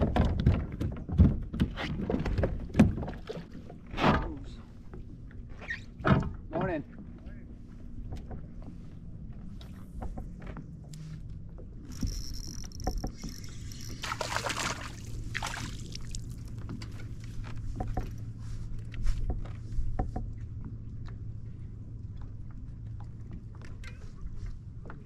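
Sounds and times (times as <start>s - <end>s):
low steady hum: 2.4s - 25.0s
fishing reel whir: 11.8s - 15.3s
tackle knocking against hull: 17.7s - 18.2s.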